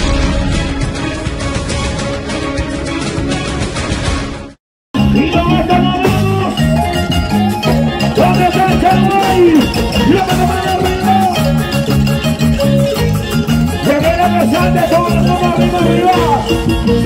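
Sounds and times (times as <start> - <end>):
drum kit: 0.0 - 17.0
repeating bass line: 5.0 - 17.0.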